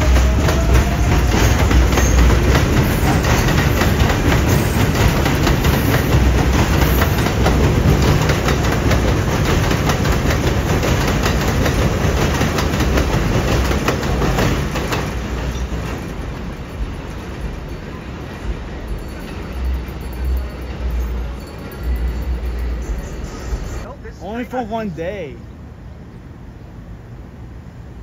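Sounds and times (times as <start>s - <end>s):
train wheels clacking over rail joints: 0.0s - 20.0s
train rumble: 0.0s - 28.0s.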